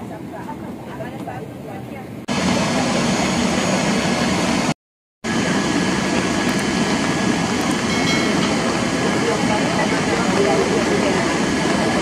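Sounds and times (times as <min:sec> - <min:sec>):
aircraft engine noise: 0:00.0 - 0:12.0.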